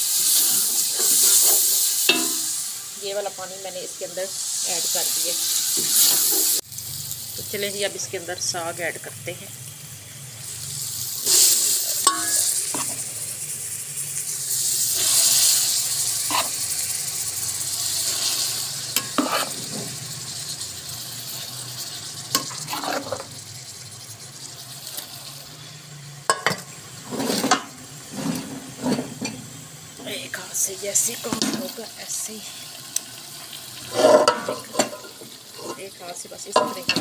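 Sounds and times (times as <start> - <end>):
hot oil sizzling: 0.0 - 37.0
spoon scraping and knocking pots: 0.5 - 2.6, 11.3 - 13.0, 16.3 - 16.6, 18.9 - 20.0, 22.3 - 23.3, 26.3 - 29.5, 33.9 - 35.9, 36.5 - 37.0.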